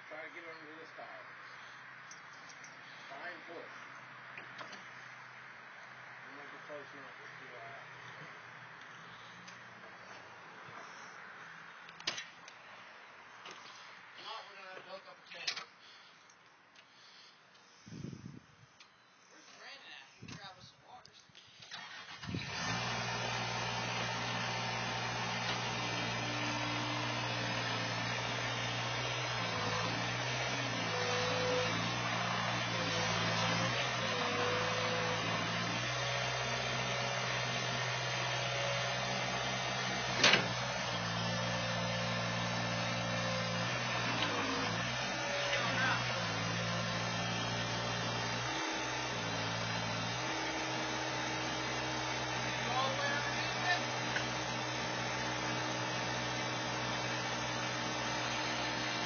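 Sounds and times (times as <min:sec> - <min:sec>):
diesel engine running: 0:21.8 - 0:59.0.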